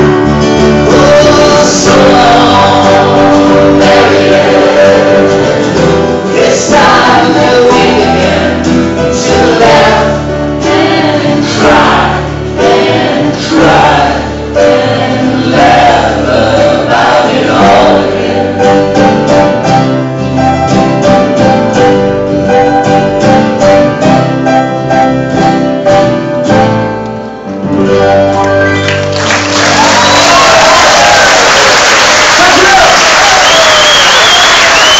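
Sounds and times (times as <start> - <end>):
double bass: 0.0 - 30.4
acoustic guitars strumming: 0.0 - 31.8
voices singing together: 0.8 - 18.8.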